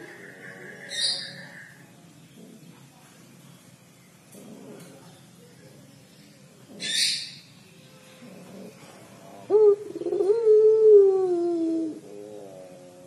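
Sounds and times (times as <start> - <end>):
dove cooing: 0.0 - 1.8, 8.0 - 13.0.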